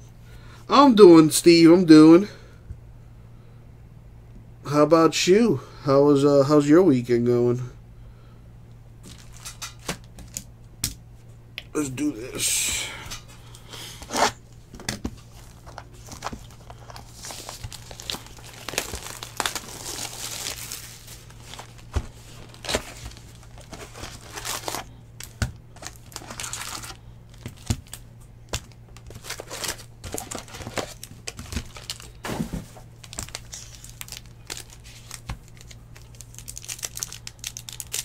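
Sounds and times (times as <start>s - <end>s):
plastic wrappers tearing and crinkling: 9.0s - 10.5s, 15.2s - 38.0s.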